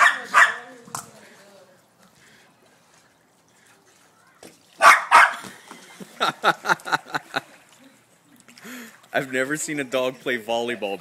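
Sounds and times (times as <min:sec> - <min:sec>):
dog barking: 0:00.0 - 0:00.7, 0:04.8 - 0:05.4.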